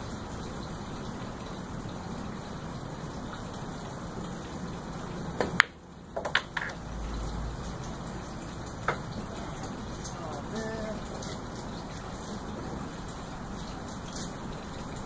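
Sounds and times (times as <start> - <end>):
billiard balls clicking together: 5.5 - 6.8.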